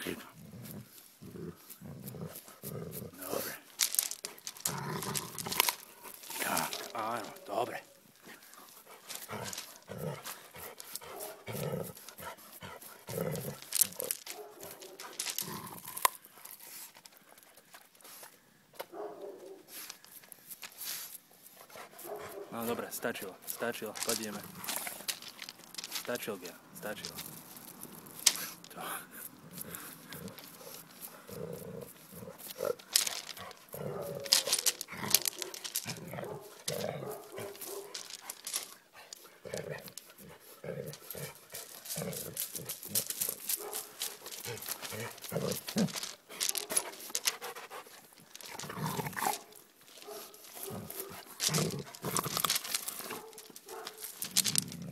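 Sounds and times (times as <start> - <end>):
gravel crunching underfoot: 0.0 - 17.0, 19.4 - 54.9
dog sniffing: 8.3 - 15.4, 29.2 - 54.4.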